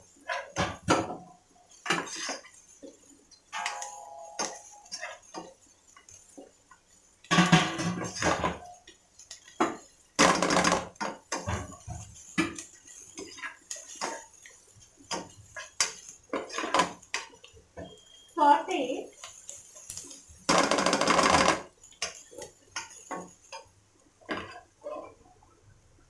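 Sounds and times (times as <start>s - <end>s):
mince sauteing in oil: 0.0s - 25.7s
spatula scraping a pot: 1.7s - 6.5s, 10.9s - 18.3s.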